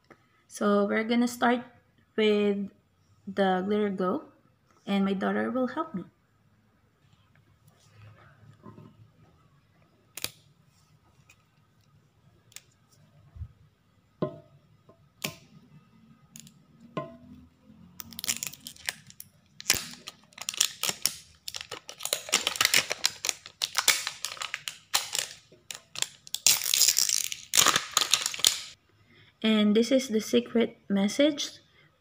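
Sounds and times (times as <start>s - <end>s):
plastic wrapper crinkling and tearing: 18.0s - 28.8s.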